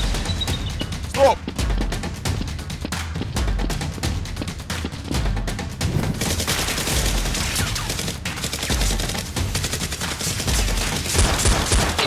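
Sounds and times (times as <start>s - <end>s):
machine-gun fire sound effects: 6.1s - 12.0s.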